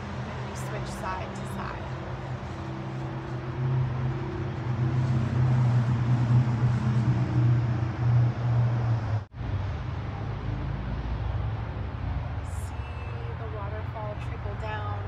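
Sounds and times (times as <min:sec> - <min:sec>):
passing vehicle engine droning: 0:00.0 - 0:15.0.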